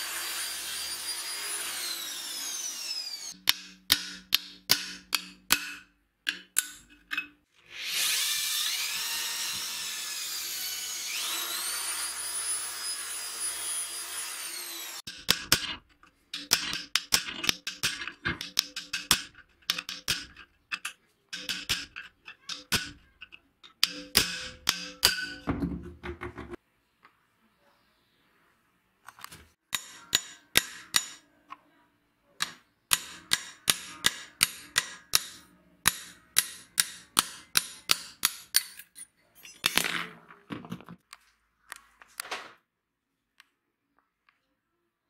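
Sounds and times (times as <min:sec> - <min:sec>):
small power tool whining: 0:00.0 - 0:03.4, 0:07.6 - 0:15.1
metal pick scraping rust: 0:15.1 - 0:25.5.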